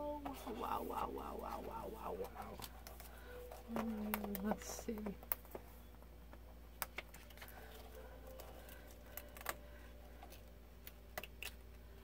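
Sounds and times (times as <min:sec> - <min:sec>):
paper and card handling: 0:06.6 - 0:11.9.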